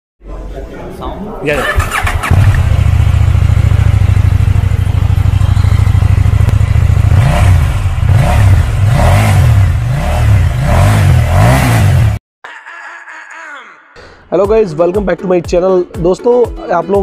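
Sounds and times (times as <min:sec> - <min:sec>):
motorcycle engine idling and revving: 0:01.6 - 0:12.2.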